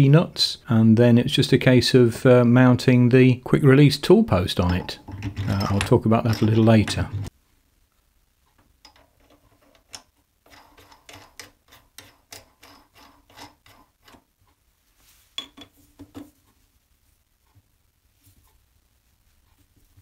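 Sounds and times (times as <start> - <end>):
spanner clinking on metal nut: 4.6 - 7.3, 8.8 - 14.2
metallic clicking of turning nut: 8.8 - 14.3.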